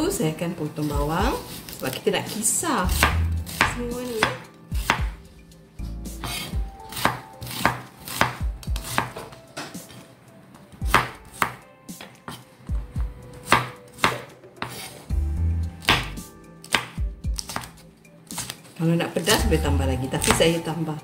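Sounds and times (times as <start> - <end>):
knife chopping on wooden board: 2.9 - 5.2, 6.2 - 10.0, 10.8 - 12.4, 13.0 - 15.0, 15.8 - 18.6, 20.2 - 20.6.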